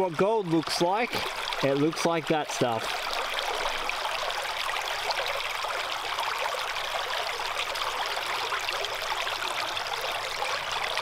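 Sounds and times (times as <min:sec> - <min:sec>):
water rushing through sluice: 0:00.0 - 0:11.0.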